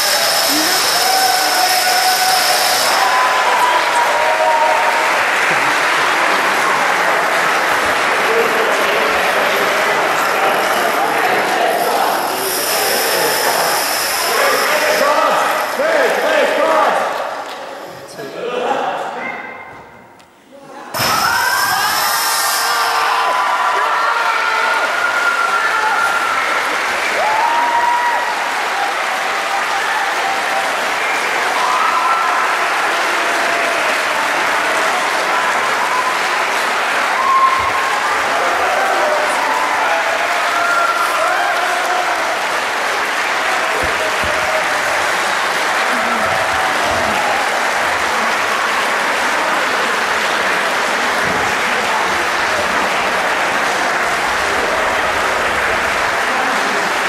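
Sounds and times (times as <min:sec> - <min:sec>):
high-pitched calls: 0:00.0 - 0:03.7
crowd applauding: 0:00.0 - 0:18.3, 0:20.9 - 0:57.0.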